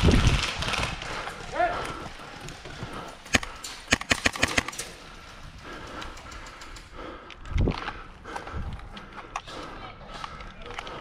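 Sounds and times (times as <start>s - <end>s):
airsoft rifle shots: 3.3s - 5.0s.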